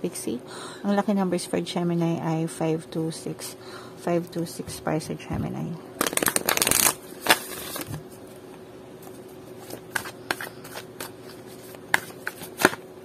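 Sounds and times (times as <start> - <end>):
cards riffle-shuffled: 6.0 - 8.0, 9.0 - 12.8
cards tapping and sliding: 9.0 - 12.8.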